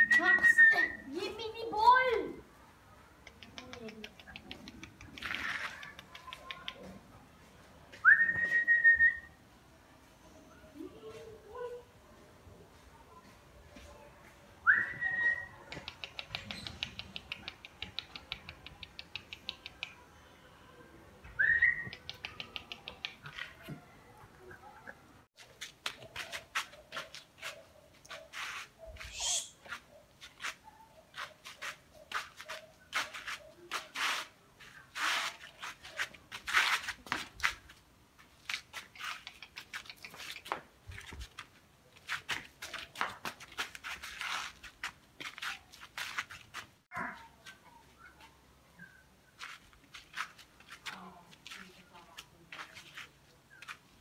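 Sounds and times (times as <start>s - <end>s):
puppies scampering on concrete: 3.3s - 7.5s, 14.7s - 20.0s, 21.4s - 54.0s
short rising whistles: 29.0s - 29.6s.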